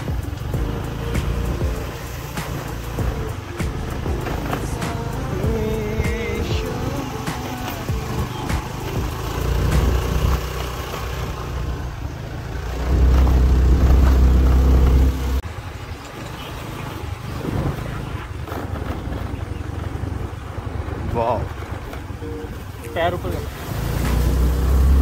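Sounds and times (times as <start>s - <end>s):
engine running: 0.0s - 25.0s.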